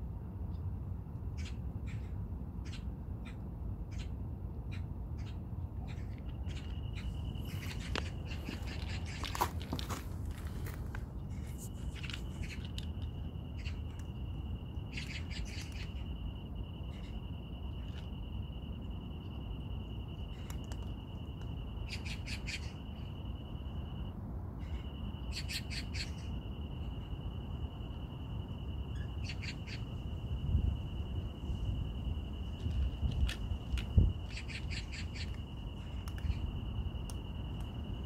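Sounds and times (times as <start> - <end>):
rapid bird chirping: 1.4 - 9.4, 13.4 - 17.8, 21.2 - 23.4, 24.6 - 26.8, 28.4 - 30.3, 34.2 - 37.5
steady high-pitched insect note: 6.2 - 38.0.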